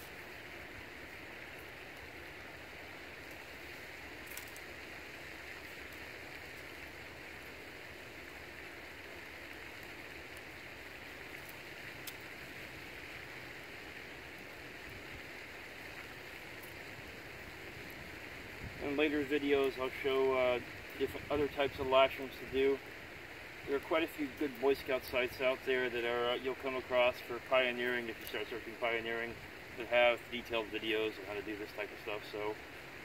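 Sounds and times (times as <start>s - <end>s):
outdoor background hiss: 0.0s - 33.0s
cord rustling and clicking: 4.2s - 4.7s.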